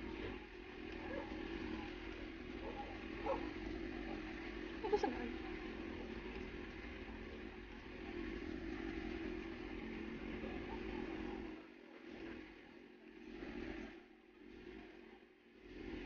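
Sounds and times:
vehicle engine running: 0:00.0 - 0:11.6.

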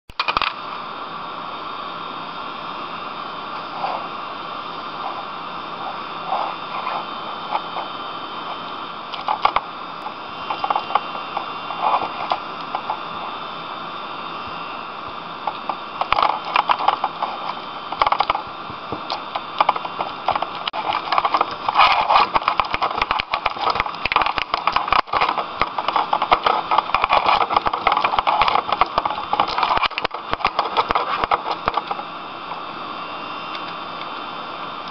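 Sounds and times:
computer mouse clicking and rattling: 0:09.1 - 0:09.6, 0:15.4 - 0:18.4, 0:19.1 - 0:32.0.

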